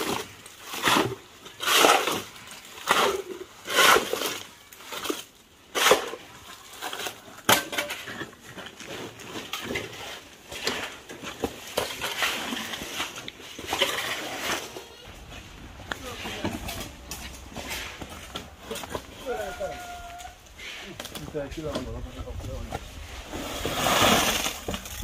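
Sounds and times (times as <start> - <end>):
shovels scraping wet concrete: 0.0 - 25.0
concrete dumped into wheelbarrow: 22.6 - 25.0.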